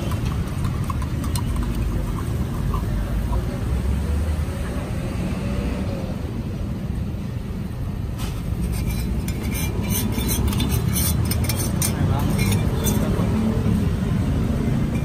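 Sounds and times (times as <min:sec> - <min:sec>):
metal scoop clinking on plastic cup: 0:00.0 - 0:02.9, 0:08.6 - 0:13.2
road traffic rumble: 0:00.0 - 0:15.0.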